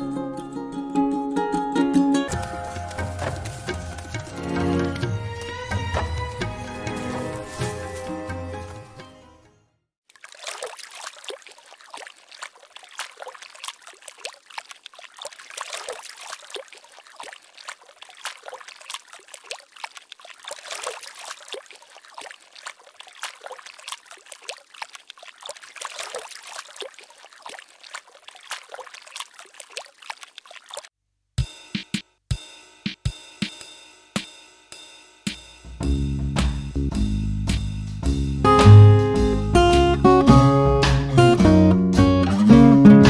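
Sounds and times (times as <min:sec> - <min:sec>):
water splashing in pool: 0:10.0 - 0:30.9.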